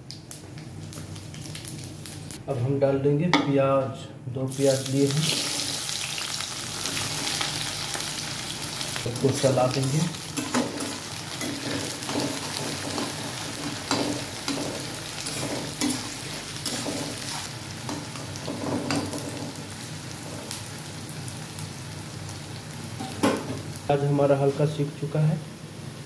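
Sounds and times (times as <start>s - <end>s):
onions sizzling in hot oil: 0.1s - 2.4s, 4.5s - 26.0s
spatula scraping a pan: 13.9s - 17.5s.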